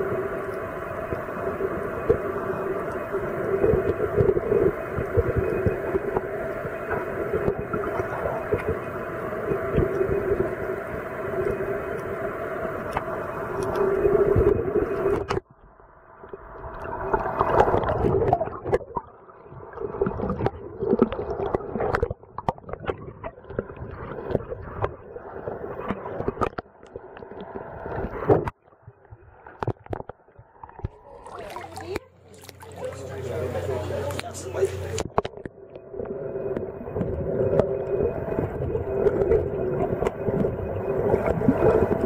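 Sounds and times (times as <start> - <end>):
muffled underwater gurgling: 0.0 - 15.4, 16.2 - 42.0
underwater clicks and knocks: 25.8 - 27.0, 28.0 - 32.7, 34.9 - 35.8.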